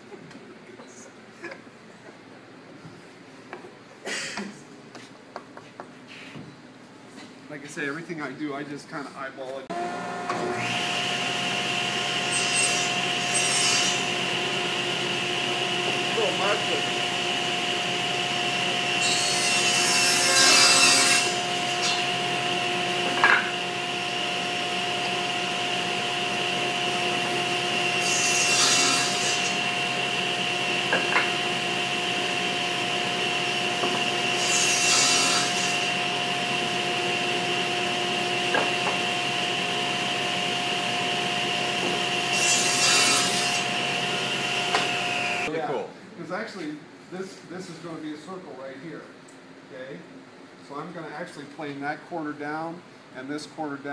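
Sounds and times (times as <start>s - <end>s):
table saw whine: 9.7s - 45.5s
saw blade cutting wood: 10.3s - 17.1s, 18.6s - 37.8s, 38.4s - 45.5s.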